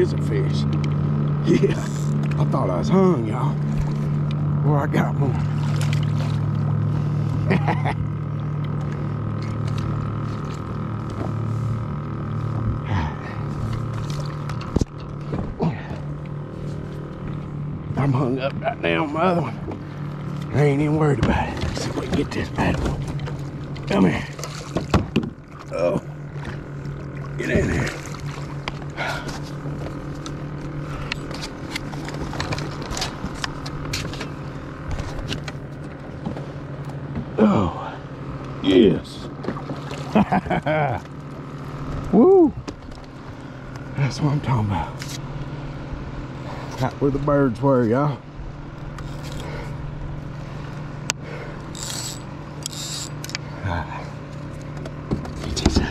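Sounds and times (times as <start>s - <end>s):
electric trolling motor humming: 0.0s - 55.9s
fishing reel clicks and knocks: 51.7s - 53.4s.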